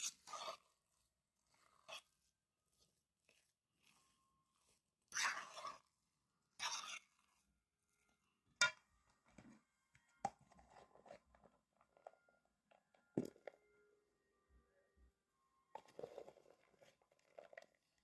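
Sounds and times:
squishy scraping in a bowl: 0.0s - 8.8s, 10.4s - 12.2s, 15.7s - 18.0s.

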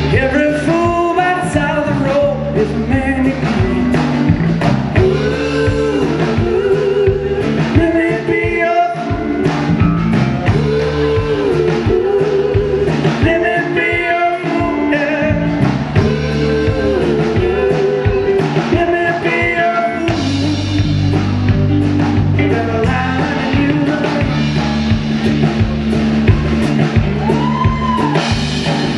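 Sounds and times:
blues-rock band playing: 0.0s - 28.9s
drum hits: 0.0s - 28.9s.

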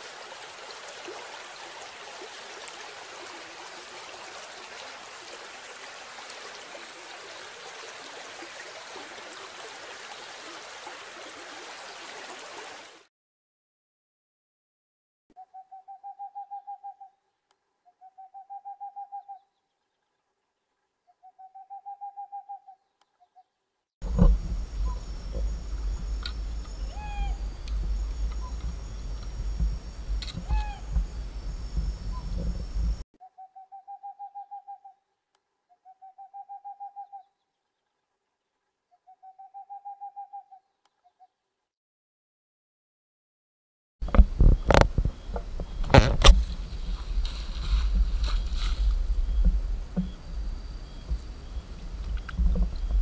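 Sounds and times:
faint steady hum: 24.0s - 33.0s, 44.0s - 53.0s
night animal calling: 26.7s - 29.0s, 30.2s - 31.0s.

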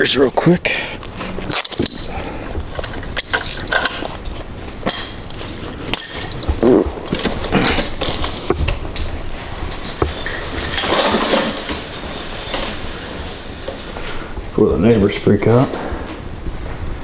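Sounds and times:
hard objects clicking and rattling: 1.1s - 12.9s.

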